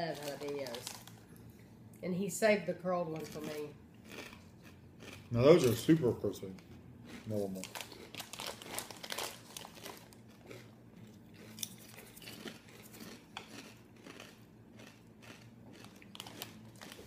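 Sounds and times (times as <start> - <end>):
chip bag crinkling: 0.0 - 1.3, 7.1 - 17.0
chips being chewed: 0.0 - 1.6, 3.2 - 5.8, 6.5 - 17.0.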